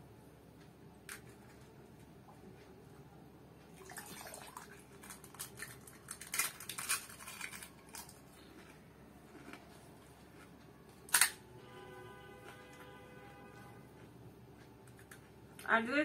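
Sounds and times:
crunching and slurping in mouth: 0:05.3 - 0:10.6.

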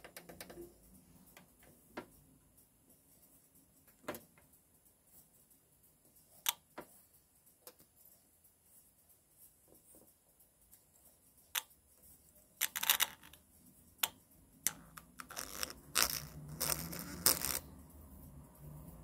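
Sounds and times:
loudspeaker crackling and popping: 0:14.7 - 0:17.7.

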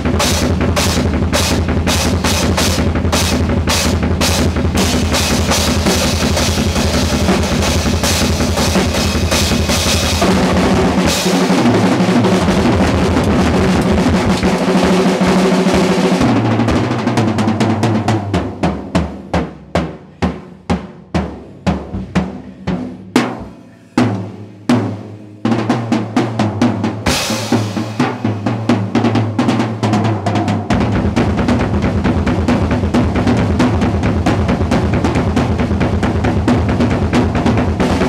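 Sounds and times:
drum kit playing: 0:00.0 - 0:38.0
cymbal crash: 0:02.6 - 0:16.5.

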